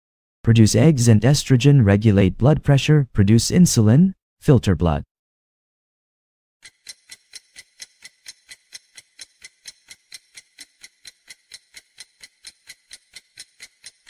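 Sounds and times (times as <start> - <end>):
clock ticking: 6.6 - 14.0.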